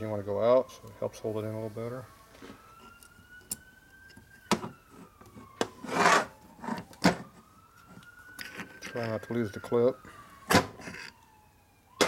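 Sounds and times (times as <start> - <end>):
faint siren: 0.0 - 12.0
metal scrape: 5.8 - 6.8.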